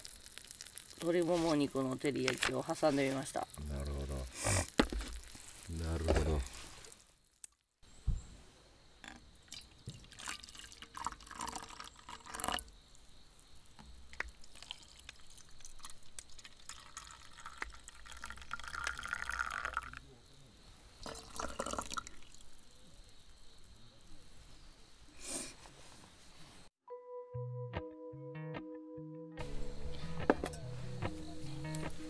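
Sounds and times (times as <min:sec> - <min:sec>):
coffee pouring into metal mugs: 0:09.5 - 0:12.7, 0:14.1 - 0:20.0, 0:21.0 - 0:22.5.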